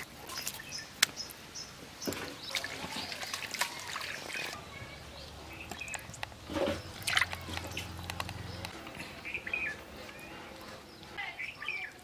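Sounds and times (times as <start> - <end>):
water splashing in a steel basin: 2.1 - 4.7, 6.0 - 8.0.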